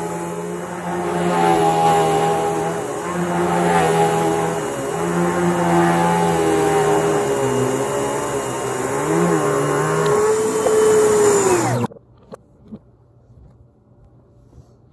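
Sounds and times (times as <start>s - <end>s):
vacuum cleaner motor reversed: 0.0s - 11.9s.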